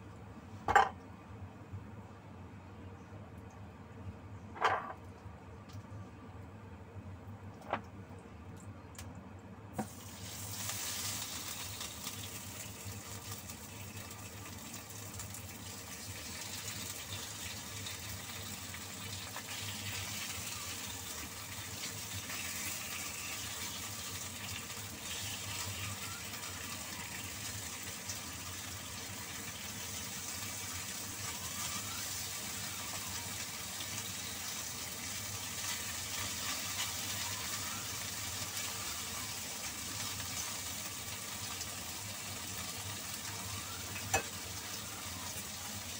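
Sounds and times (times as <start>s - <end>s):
chicken sizzling in hot oil: 9.8s - 45.9s.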